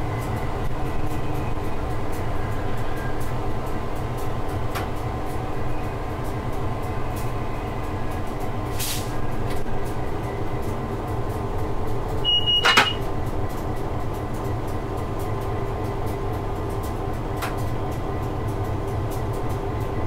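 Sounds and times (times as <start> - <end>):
locomotive engine drone: 0.0 - 20.0
brief hiss: 8.8 - 9.1.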